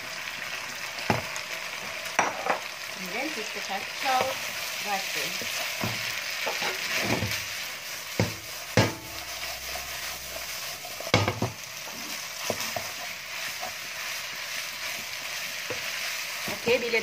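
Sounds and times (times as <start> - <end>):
frying sizzle in a wok: 0.0 - 17.0
spatula knocking and scraping pan: 4.1 - 4.4, 5.5 - 7.5, 8.1 - 13.9, 15.0 - 16.8.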